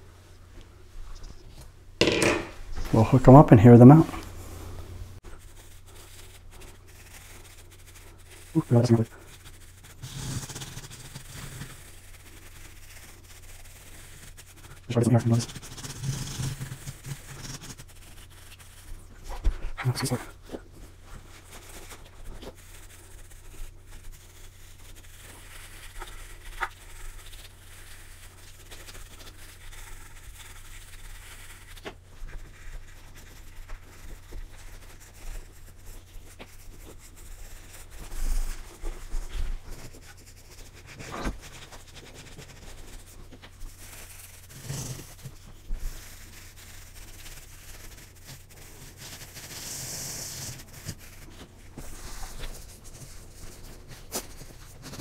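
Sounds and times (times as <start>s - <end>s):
brush hissing: 3.0s - 19.0s.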